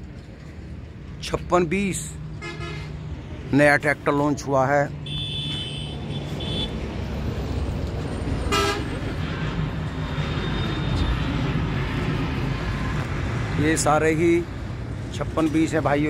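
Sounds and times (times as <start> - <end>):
idling engines and traffic: 0.0 - 16.0
car horns tooting: 2.4 - 2.9, 5.0 - 6.8, 8.5 - 9.0.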